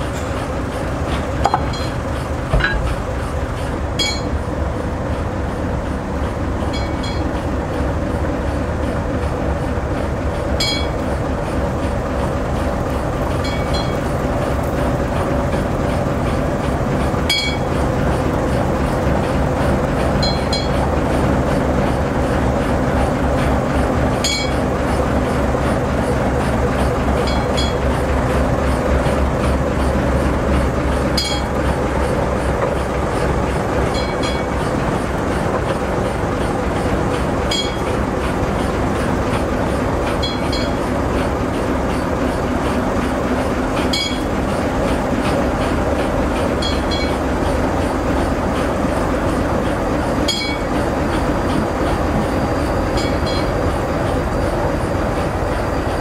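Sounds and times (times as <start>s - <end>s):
diesel locomotive engine running: 0.0s - 56.0s.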